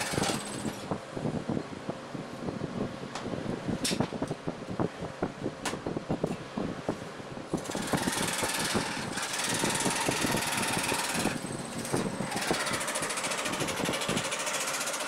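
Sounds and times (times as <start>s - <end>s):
saw rasping through wood: 0.0s - 0.7s, 7.6s - 15.0s.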